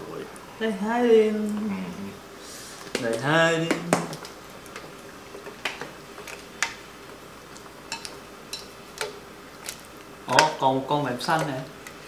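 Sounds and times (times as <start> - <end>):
utensils clinking on steel pot: 7.9 - 9.1.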